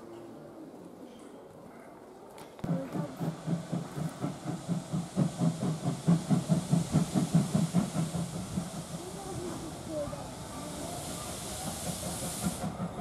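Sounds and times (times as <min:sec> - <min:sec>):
steam hissing: 0:02.6 - 0:13.0
steam locomotive chuffing: 0:02.6 - 0:13.0.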